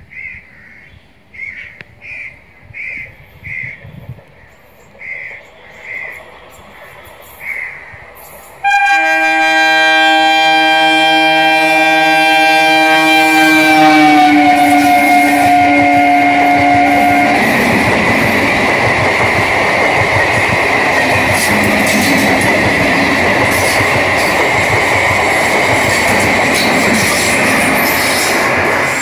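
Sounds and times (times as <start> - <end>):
train wheels rumbling with whine: 3.4 - 29.0
train horn: 8.6 - 17.7.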